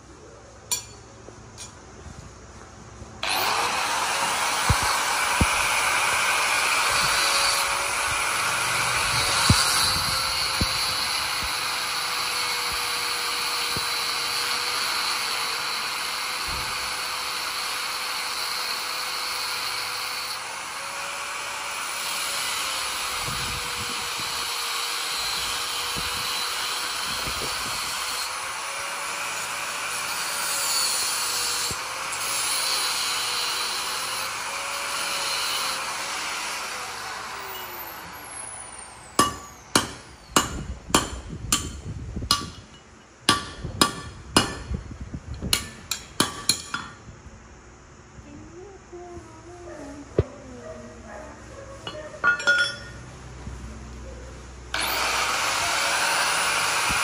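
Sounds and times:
hammer striking metal: 0:00.7 - 0:01.0, 0:39.2 - 0:44.8, 0:45.5 - 0:47.0, 0:51.9 - 0:53.0
angle grinder on metal: 0:03.2 - 0:44.8, 0:54.7 - 0:57.0.

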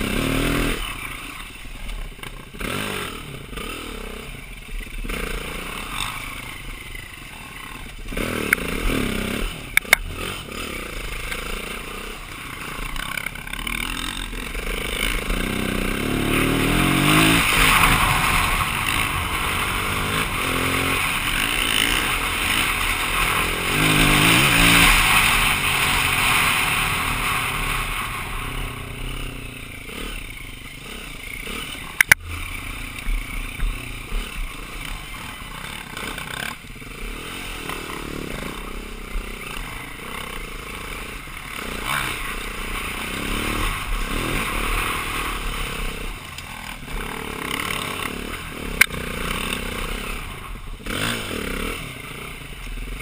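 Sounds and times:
motorcycle engine accelerating: 0:00.0 - 0:53.0
sharp click: 0:09.8 - 0:10.1.

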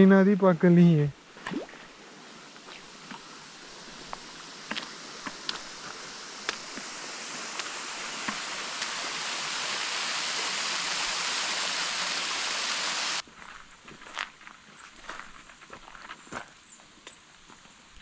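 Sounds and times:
stream rushing over stones: 0:01.2 - 0:13.2
footsteps on gravel: 0:13.2 - 0:16.6.

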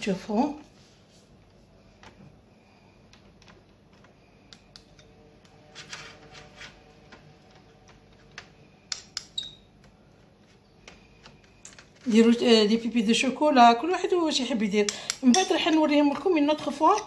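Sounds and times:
teaspoon clicking on metal tins: 0:14.8 - 0:15.8.

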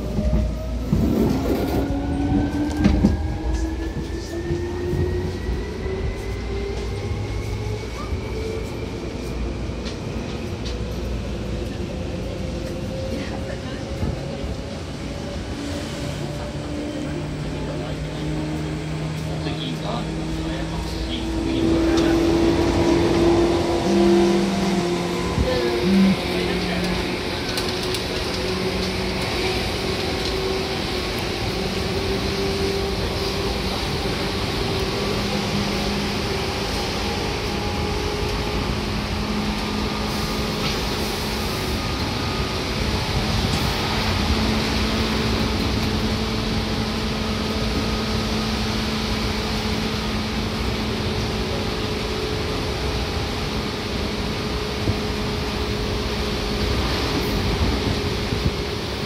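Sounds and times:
train wheels rolling: 0:19.0 - 0:59.0.

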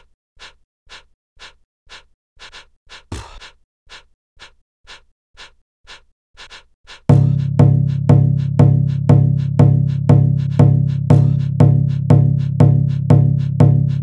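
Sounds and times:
electronic dance beat with bass: 0:07.1 - 0:14.0.

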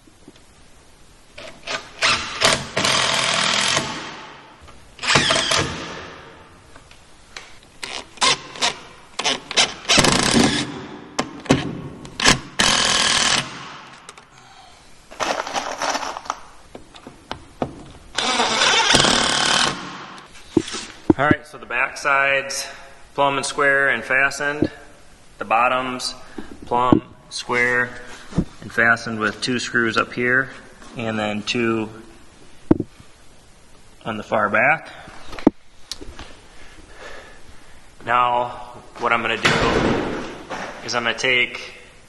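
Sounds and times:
power driver driving screws: 0:01.6 - 0:04.2, 0:05.0 - 0:06.0, 0:07.8 - 0:10.8, 0:12.2 - 0:14.2, 0:18.2 - 0:20.0.

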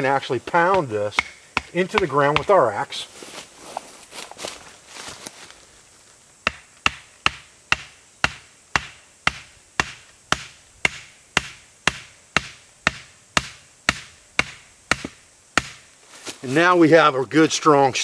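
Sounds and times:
axe knocking wooden stake: 0:00.6 - 0:02.6, 0:06.4 - 0:15.8.

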